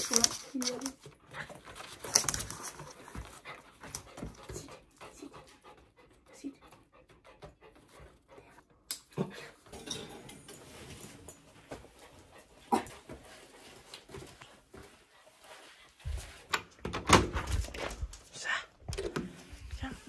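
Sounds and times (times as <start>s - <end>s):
dog panting: 0.1s - 9.6s, 11.7s - 16.3s.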